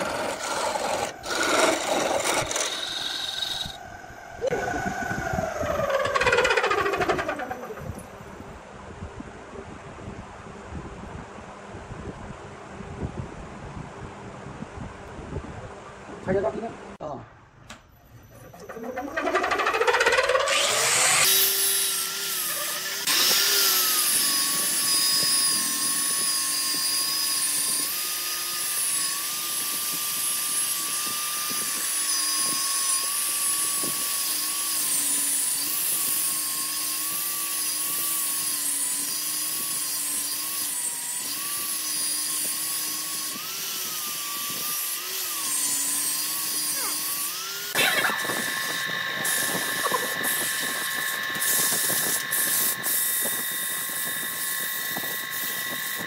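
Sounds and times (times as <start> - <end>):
angle grinder sanding wood: 0.0 - 3.8, 5.7 - 7.9, 18.5 - 56.0
lathe motor hum: 0.0 - 3.8, 18.5 - 24.9.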